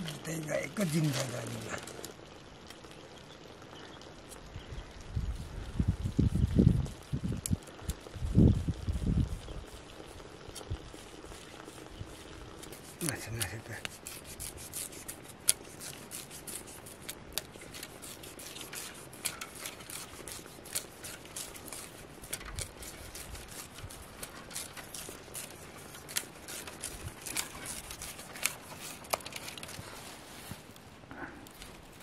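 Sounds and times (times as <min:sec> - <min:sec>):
blade splitting grass stalks: 0:12.6 - 0:29.9.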